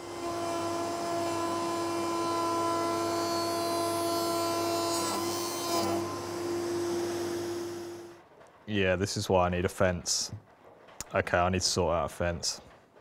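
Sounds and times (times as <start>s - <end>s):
router bit high whine: 0.0s - 8.2s.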